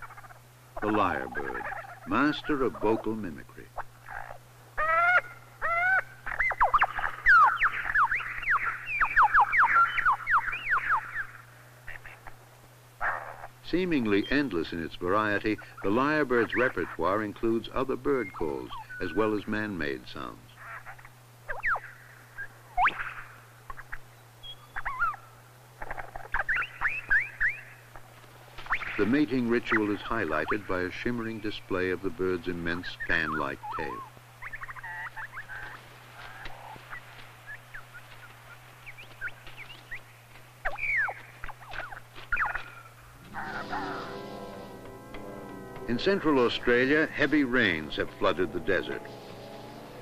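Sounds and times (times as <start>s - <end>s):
lyrebird singing mimicry song: 0.0s - 12.4s, 13.0s - 28.0s, 28.7s - 44.3s
bird singing whistled notes: 6.0s - 11.4s, 24.1s - 25.3s, 26.3s - 27.8s, 38.8s - 44.0s.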